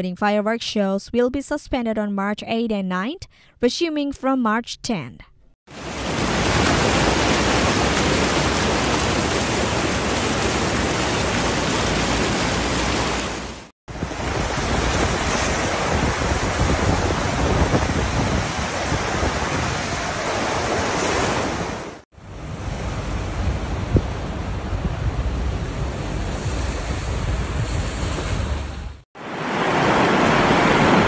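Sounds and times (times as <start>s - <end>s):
muddy torrent rushing: 5.7s - 31.0s
vehicle splashing through floodwater: 5.8s - 13.7s
wind on microphone: 13.9s - 21.8s, 22.4s - 29.0s.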